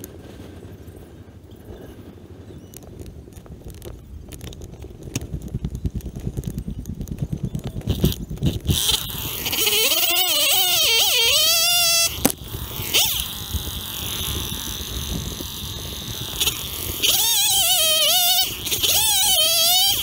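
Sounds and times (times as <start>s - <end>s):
kazoo buzzing: 7.8s - 20.0s.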